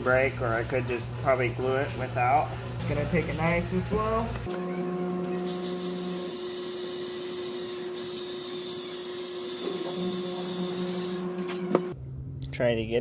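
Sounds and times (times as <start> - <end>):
electric drill whining: 5.2 - 12.0.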